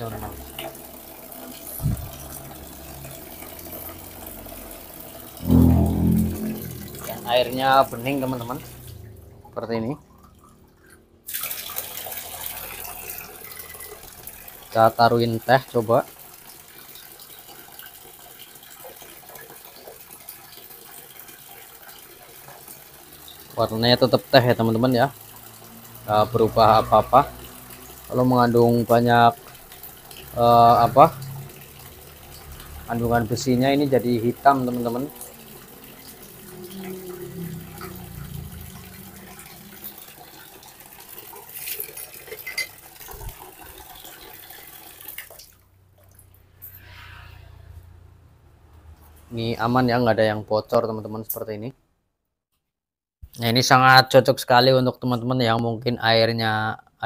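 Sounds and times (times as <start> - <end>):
water trickling from pipe: 0.0 - 47.6
liquid poured between glasses: 10.0 - 14.0.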